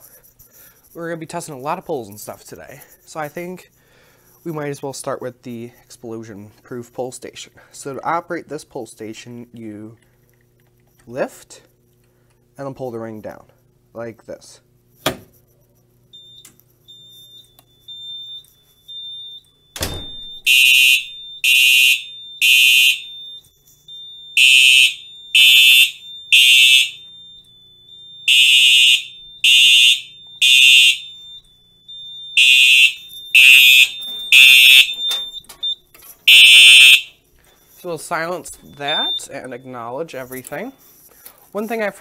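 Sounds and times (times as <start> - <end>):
thin steady high tone: 15.6 - 42.0
fire alarm horn blasts: 16.2 - 37.9, 38.7 - 39.9.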